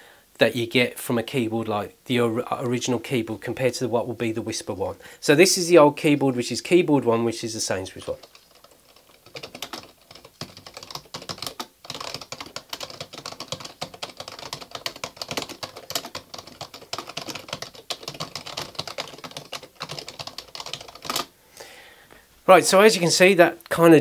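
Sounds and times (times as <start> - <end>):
fast keyboard typing: 7.9 - 21.3.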